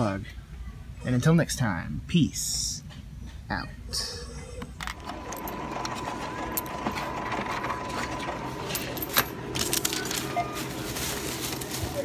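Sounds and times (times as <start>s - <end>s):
plastic bags handled: 8.7s - 12.0s.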